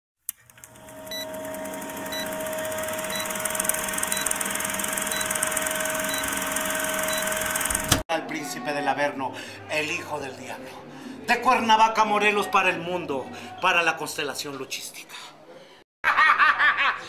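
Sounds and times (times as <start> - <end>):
film projector hiss and whir: 0.4 - 8.0.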